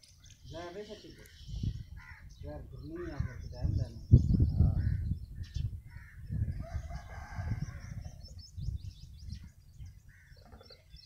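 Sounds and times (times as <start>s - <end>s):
rooster crowing: 6.6s - 8.0s.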